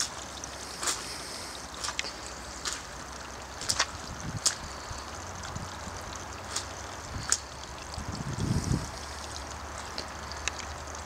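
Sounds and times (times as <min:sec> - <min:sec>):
rushing flood water: 0:00.0 - 0:11.0
wind gust on microphone: 0:07.9 - 0:09.1.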